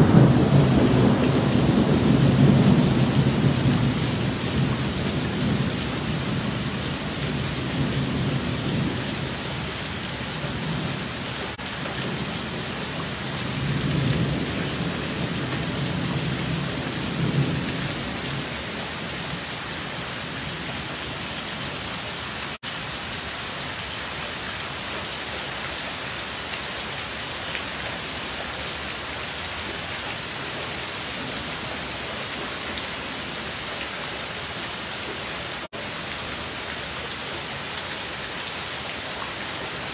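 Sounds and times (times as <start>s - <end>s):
low rolling thunder: 0.0s - 6.6s
heavy rain pouring: 0.0s - 39.9s.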